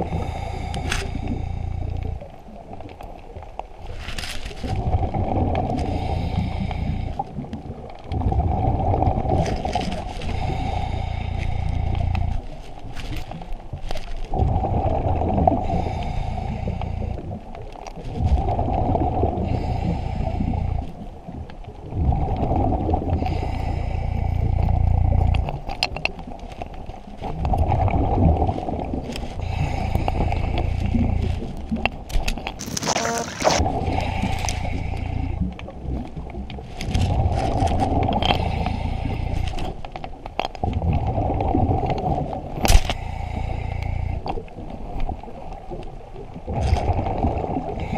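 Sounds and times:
regulator hiss on inhale: 0.0 - 2.2, 5.8 - 7.2, 10.2 - 12.5, 15.6 - 17.2, 19.4 - 20.9, 23.2 - 25.2, 29.4 - 31.5, 33.9 - 35.4, 42.9 - 44.4
exhaled bubbles rumbling: 0.0 - 47.9.

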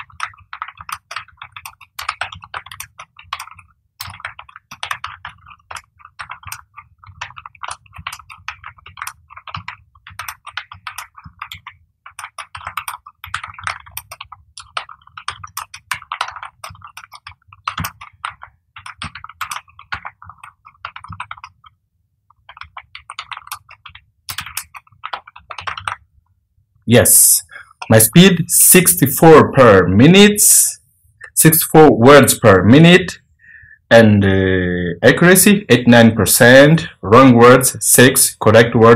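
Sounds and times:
fast typing on keyboard: 0.0 - 26.4, 27.0 - 29.4.

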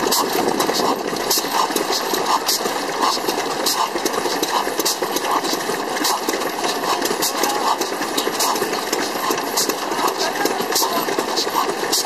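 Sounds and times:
stationary engine running: 0.0 - 12.0.

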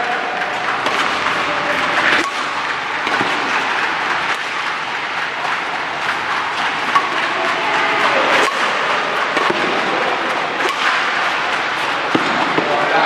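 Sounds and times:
noisy hall background: 0.0 - 13.0
racket hitting shuttlecock: 0.0 - 13.0.

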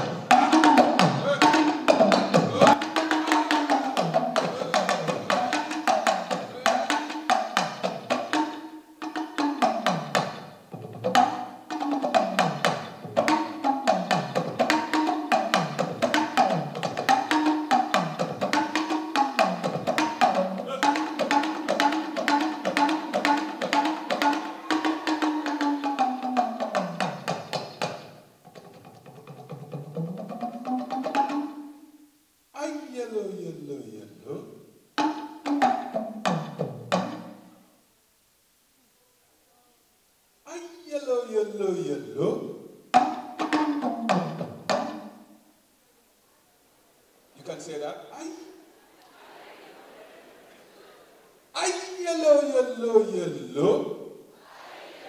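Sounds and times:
talking drum playing: 0.0 - 31.8, 35.0 - 37.5, 42.2 - 45.2.

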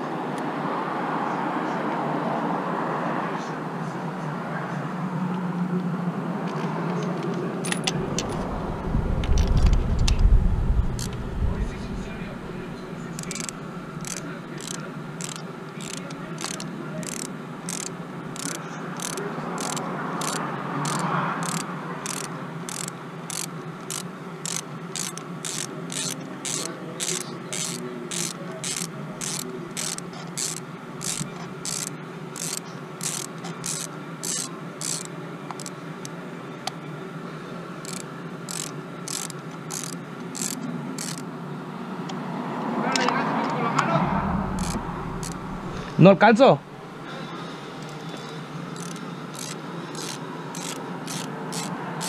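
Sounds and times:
ratchet wrench clicking: 12.5 - 36.1, 37.8 - 41.2, 44.5 - 45.9, 48.7 - 52.0.

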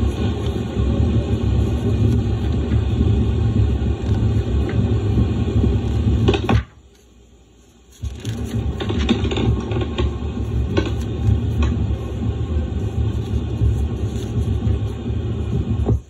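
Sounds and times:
low rumble and hum: 0.0 - 16.0
tape hiss: 0.0 - 16.0.

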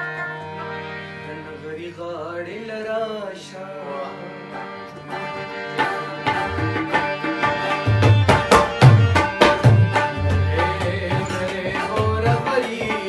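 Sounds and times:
plucked string melody: 0.0 - 13.0.

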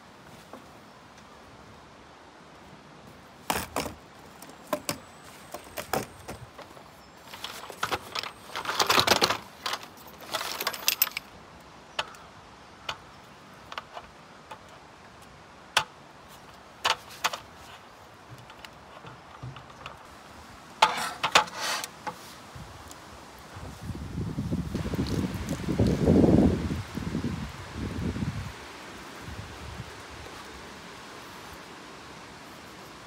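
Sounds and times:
cutting board clattering on metal: 20.8 - 21.9.

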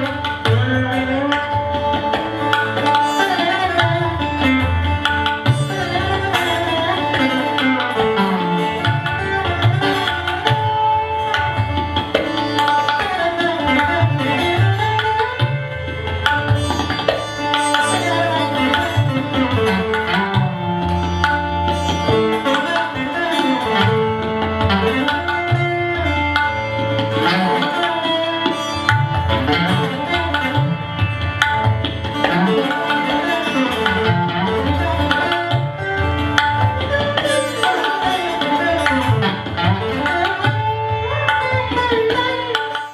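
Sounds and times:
hand drum rhythm: 33.8 - 42.8.

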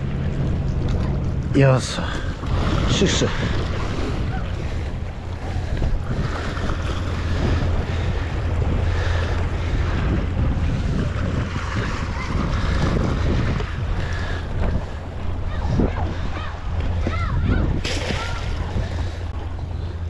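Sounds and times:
wind buffeting microphone: 0.0 - 20.0
small waves washing on rocks: 1.5 - 17.2.

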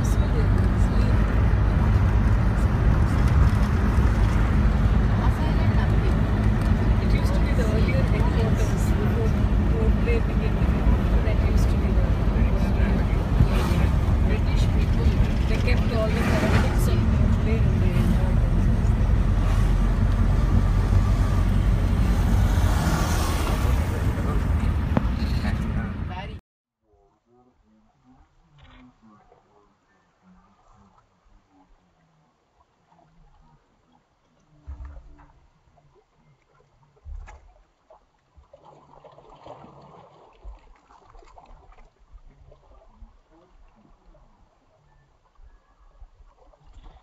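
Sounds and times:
vehicle engine and road noise: 0.0 - 26.4
wind buffeting microphone: 0.0 - 26.4
small waves lapping: 27.7 - 47.0.

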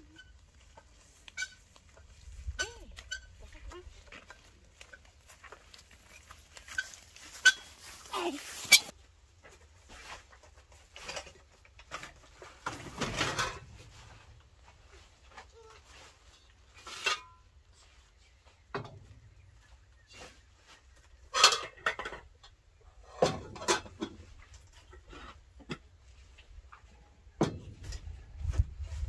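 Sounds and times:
metal pots and lids clinking: 21.3 - 22.3.

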